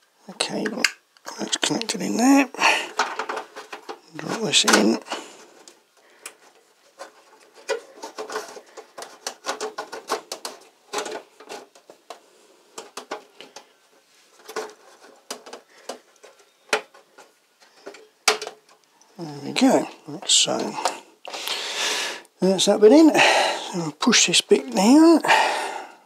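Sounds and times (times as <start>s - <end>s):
cable rustling: 0.0s - 21.8s, 22.4s - 25.6s
plastic clicks: 2.8s - 12.2s, 14.4s - 19.1s.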